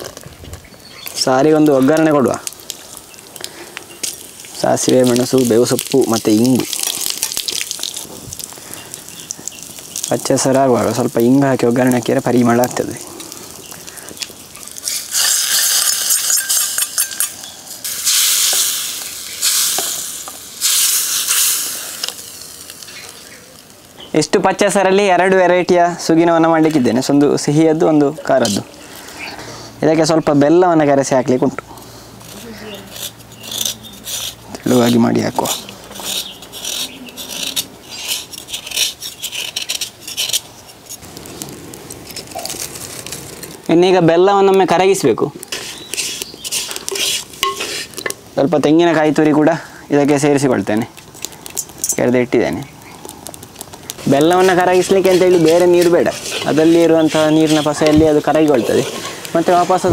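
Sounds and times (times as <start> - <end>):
hot oil sizzling: 0.0 - 59.9
knife scraping jaggery: 32.2 - 41.1, 45.5 - 48.0, 54.0 - 59.9
soft rustle: 52.9 - 59.9.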